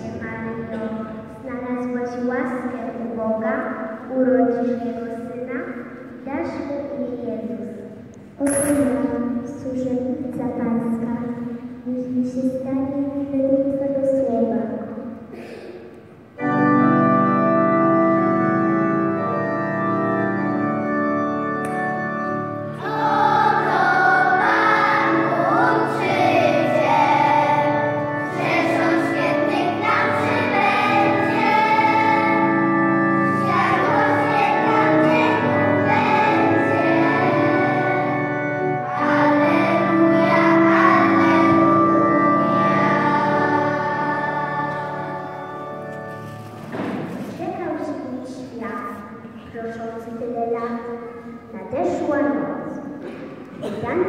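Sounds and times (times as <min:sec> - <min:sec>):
instrumental accompaniment: 0:15.9 - 0:48.0
children singing in a group: 0:22.7 - 0:45.7.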